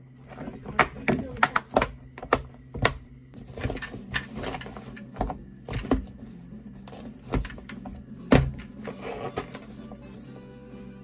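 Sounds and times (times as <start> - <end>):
plastic containers knocking: 0.3 - 6.2, 6.9 - 8.8.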